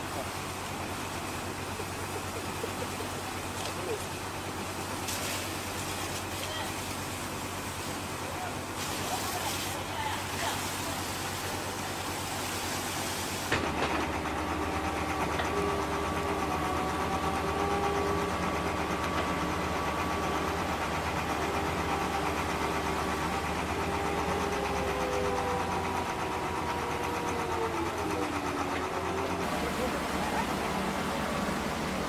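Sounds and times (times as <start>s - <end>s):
rushing water: 0.0s - 13.5s
diesel machinery rumbling: 0.0s - 32.0s.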